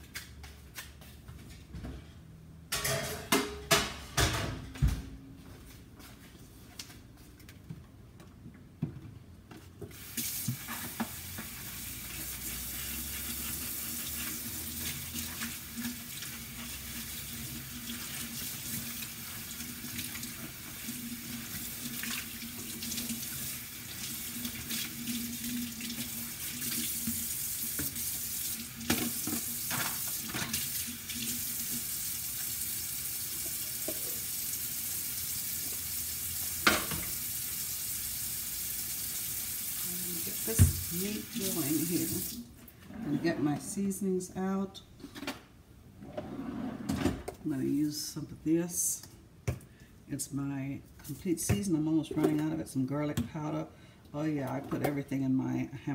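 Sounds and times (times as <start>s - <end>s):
faucet running into sink: 10.0s - 42.5s.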